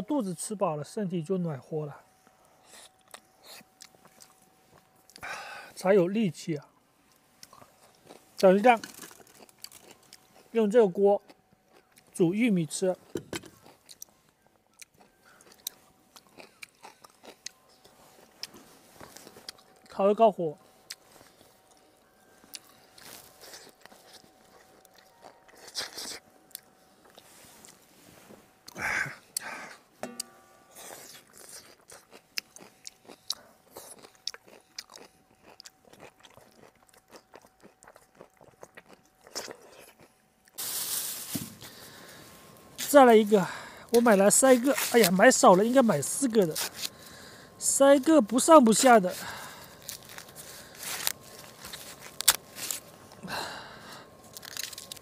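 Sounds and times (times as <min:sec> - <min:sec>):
person chewing: 0:02.6 - 0:05.3, 0:07.1 - 0:10.5, 0:11.2 - 0:12.2, 0:13.5 - 0:19.9, 0:20.8 - 0:27.8, 0:30.7 - 0:40.6, 0:48.7 - 0:55.0.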